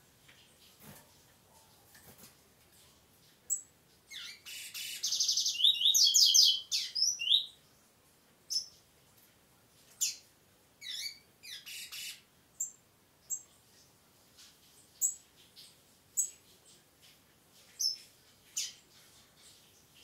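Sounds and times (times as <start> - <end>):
bird song with trills and buzzy notes: 3.5 - 7.6.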